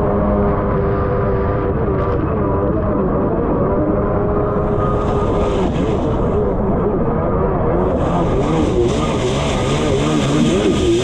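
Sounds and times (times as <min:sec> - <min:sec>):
jet ski engine running: 0:00.0 - 0:11.0
rush of wind and spray: 0:04.5 - 0:11.0.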